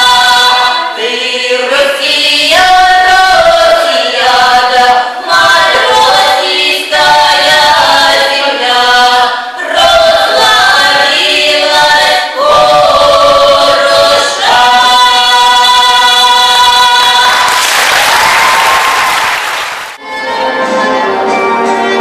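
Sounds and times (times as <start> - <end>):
choir singing: 0.0 - 17.6
applause: 17.2 - 20.0
instrumental music with violin: 20.0 - 22.0.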